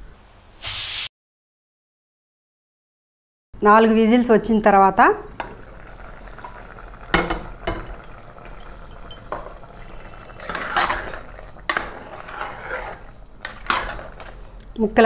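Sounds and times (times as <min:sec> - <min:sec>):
metal ladle scraping pot: 0:06.4 - 0:14.6.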